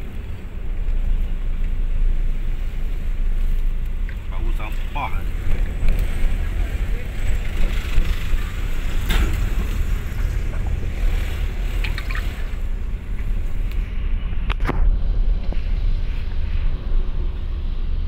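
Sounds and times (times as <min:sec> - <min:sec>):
vehicle rumble and road noise: 0:00.0 - 0:18.0.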